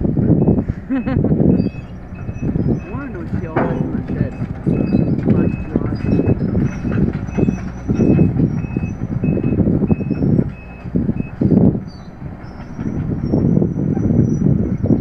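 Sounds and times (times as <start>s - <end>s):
heavy machinery rumbling: 0.0s - 15.0s
reversing alarm beeping: 0.4s - 11.4s.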